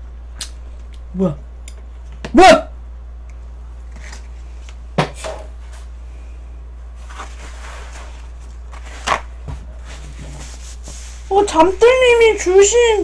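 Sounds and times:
paper towel rustling: 0:06.9 - 0:13.0.

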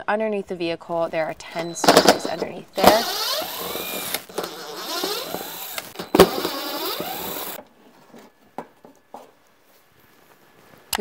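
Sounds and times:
drill click: 0:01.6 - 0:07.6
cordless drill whirring: 0:02.8 - 0:07.6.

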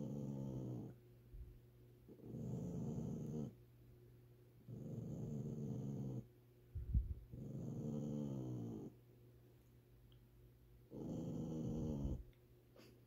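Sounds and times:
small dog growling: 0:00.0 - 0:01.0, 0:02.1 - 0:03.6, 0:04.7 - 0:06.3, 0:07.3 - 0:09.0, 0:10.9 - 0:12.3.

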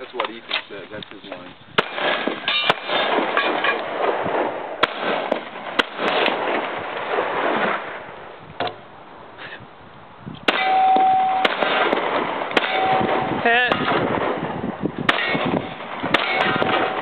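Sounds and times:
pistol shots: 0:01.8 - 0:07.9, 0:10.5 - 0:17.0
steady ringing tone: 0:10.6 - 0:11.6, 0:12.6 - 0:13.5.

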